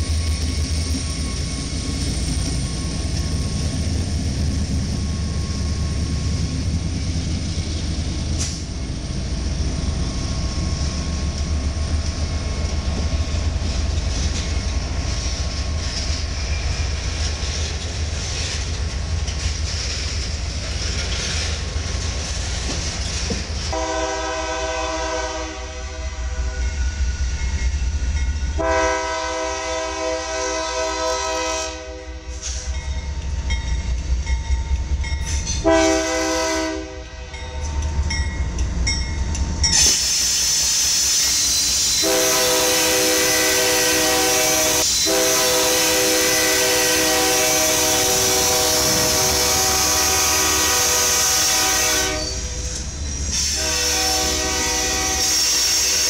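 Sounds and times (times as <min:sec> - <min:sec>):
freight train rumble: 0:00.0 - 0:56.0
locomotive engine and wheels: 0:00.0 - 0:56.0
locomotive air horn blasts: 0:23.7 - 0:26.6, 0:28.6 - 0:32.4, 0:35.6 - 0:37.4, 0:42.0 - 0:52.6, 0:53.4 - 0:56.0.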